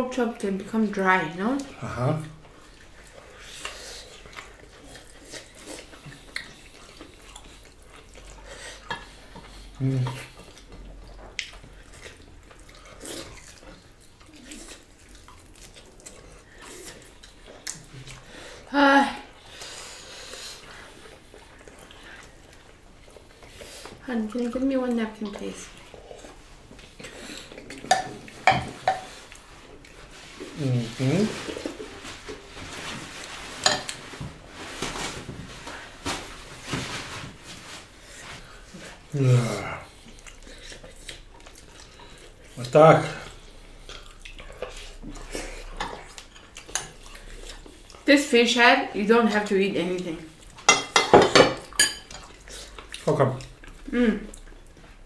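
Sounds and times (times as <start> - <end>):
wet chewing and lip smacks: 1.5 - 18.3, 39.9 - 48.1, 51.6 - 55.0
dishes scraping and handling: 32.8 - 34.3
spoon clinking on ceramic plates: 50.7 - 52.2.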